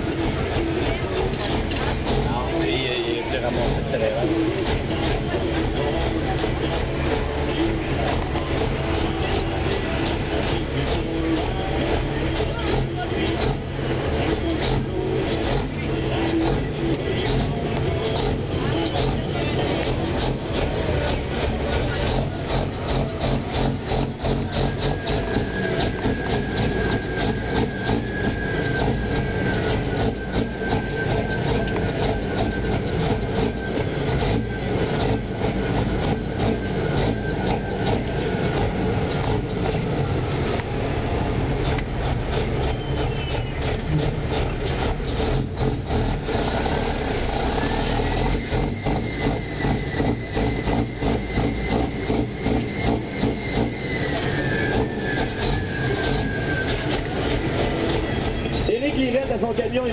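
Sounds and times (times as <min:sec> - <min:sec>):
diesel engine running: 0:00.0 - 0:59.9
faint high whistle: 0:24.5 - 0:35.2, 0:42.7 - 0:43.7, 0:47.6 - 0:58.8.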